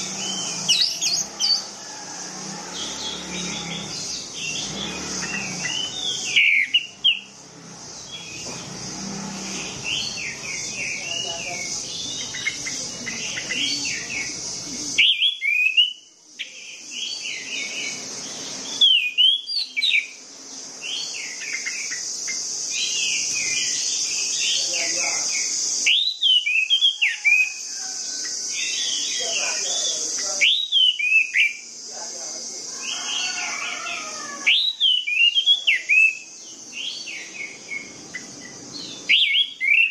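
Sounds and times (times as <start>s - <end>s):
thrush singing: 0.0s - 15.8s
high hiss: 0.0s - 39.9s.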